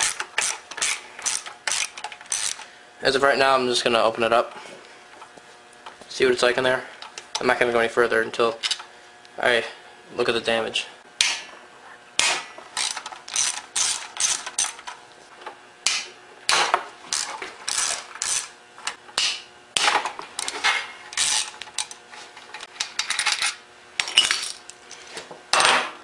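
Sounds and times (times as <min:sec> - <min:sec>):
ratchet wrench clicking: 0:00.0 - 0:02.6, 0:12.8 - 0:14.8, 0:17.1 - 0:18.5, 0:21.2 - 0:22.0.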